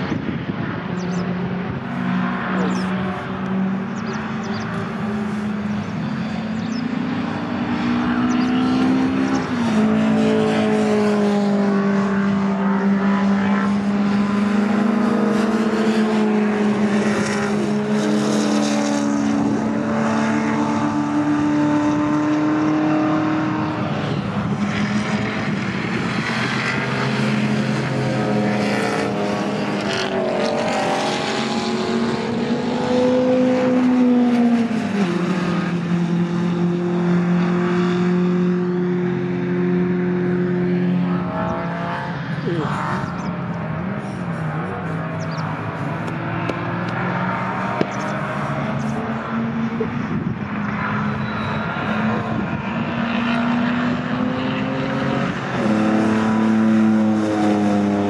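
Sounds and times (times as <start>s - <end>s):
race cars passing at speed: 0.0s - 58.0s.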